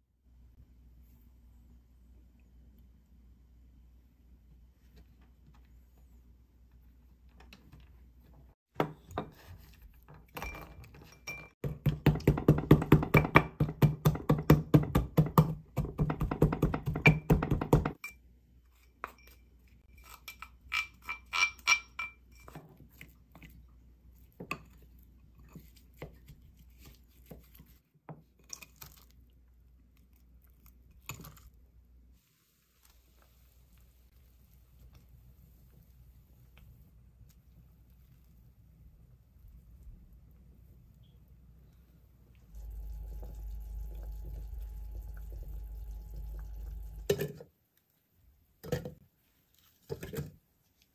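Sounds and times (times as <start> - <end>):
pestle knocking in mortar: 11.6 - 18.0.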